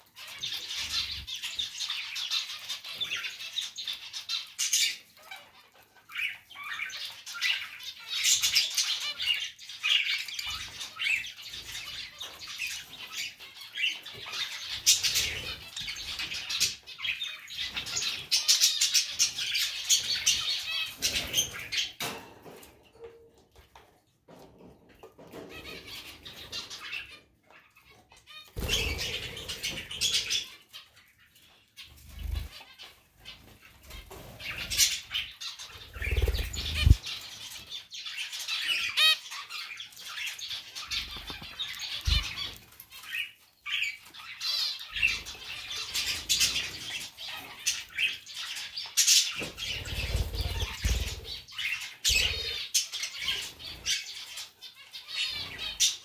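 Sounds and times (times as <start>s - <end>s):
small birds chirping: 0.0s - 56.0s
wings fluttering: 28.6s - 30.4s, 35.7s - 37.2s, 49.4s - 51.4s.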